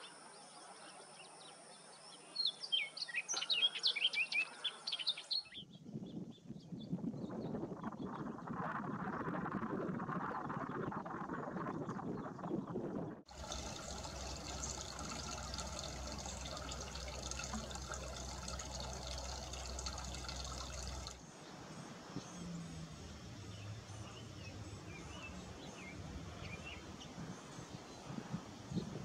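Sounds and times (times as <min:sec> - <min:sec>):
low hum: 0:13.3 - 0:21.2
small birds chirping: 0:13.3 - 0:21.2.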